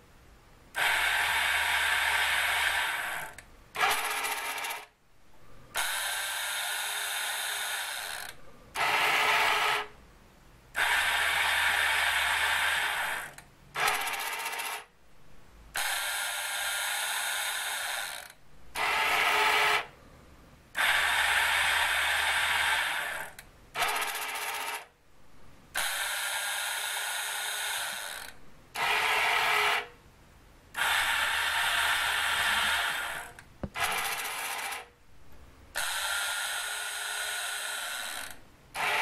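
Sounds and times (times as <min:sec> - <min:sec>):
small electric motors whirring: 0:05.8 - 0:09.8.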